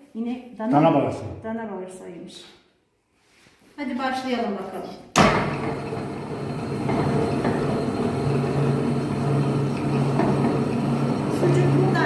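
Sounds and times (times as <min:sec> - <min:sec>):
electric meat grinder running: 0:05.4 - 0:12.0.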